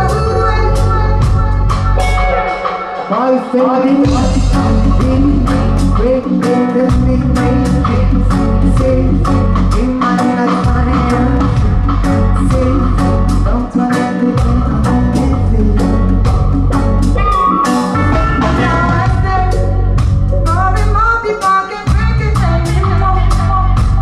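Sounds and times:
woman singing: 0:00.0 - 0:16.5, 0:17.2 - 0:24.0
bass guitar: 0:00.0 - 0:24.0
drums steady beat: 0:00.0 - 0:24.0
electric guitar: 0:00.0 - 0:24.0.

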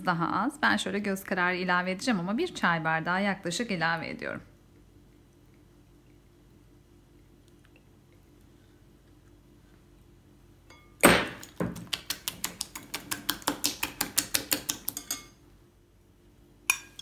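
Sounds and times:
whisk clicking against glass bowl: 0:12.0 - 0:15.4.

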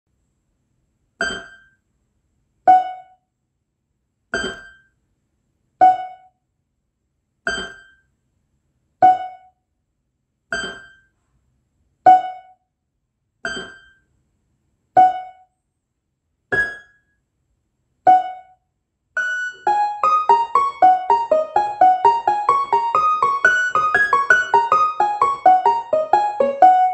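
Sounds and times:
electronic keyboard plinking notes: 0:19.2 - 0:26.9.

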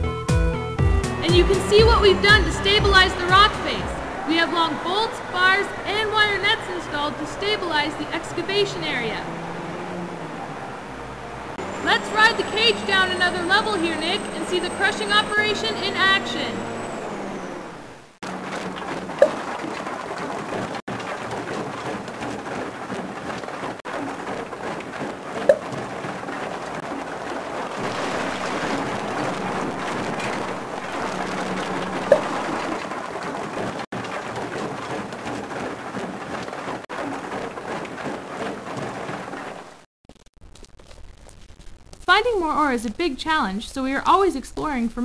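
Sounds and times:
rock crusher rattling: 0:11.1 - 0:39.8.

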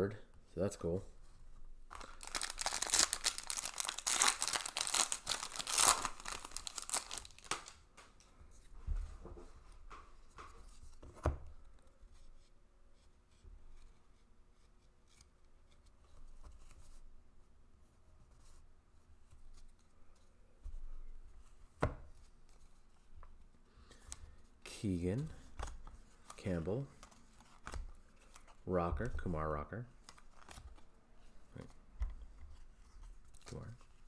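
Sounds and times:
foil wrapper tearing and crinkling: 0:01.9 - 0:07.8
cards rustling: 0:01.9 - 0:07.9, 0:25.2 - 0:29.3, 0:30.0 - 0:34.0.

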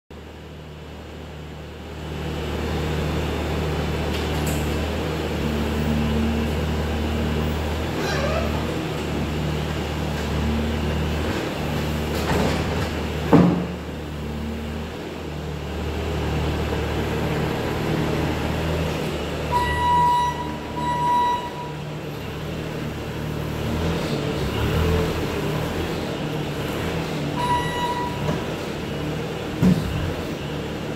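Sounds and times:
diesel loader engine running: 0:00.2 - 0:30.9
short electronic beeps: 0:19.5 - 0:21.9, 0:27.4 - 0:28.3.

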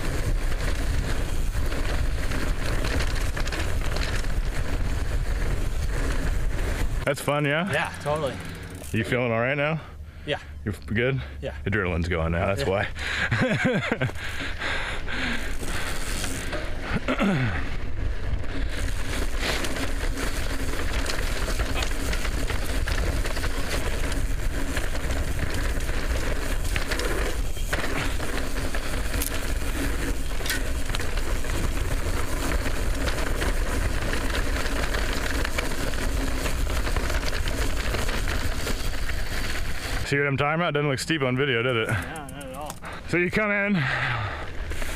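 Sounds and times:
wind rush on microphone: 0:00.0 - 0:07.1
bike rattles and clicks: 0:00.0 - 0:09.9, 0:11.8 - 0:44.9
bike tyres on dirt: 0:00.0 - 0:44.9.

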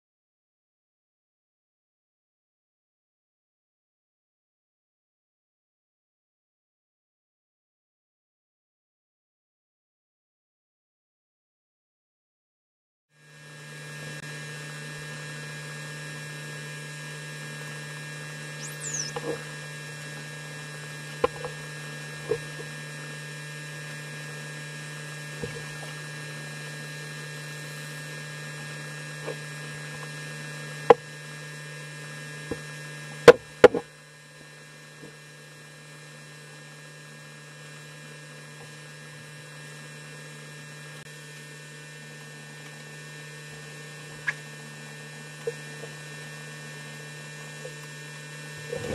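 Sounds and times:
low electrical hum: 0:13.2 - 0:48.9
faint steady tones: 0:17.6 - 0:19.6
high falling whistle: 0:18.6 - 0:19.2.

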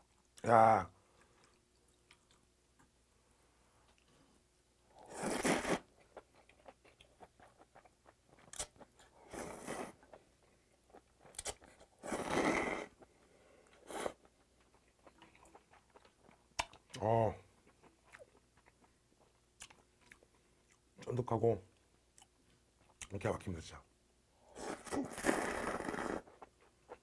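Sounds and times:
chewing: 0:01.2 - 0:02.5, 0:05.4 - 0:20.8
person slurping noodles: 0:05.0 - 0:05.9, 0:12.0 - 0:12.9, 0:24.6 - 0:26.3.

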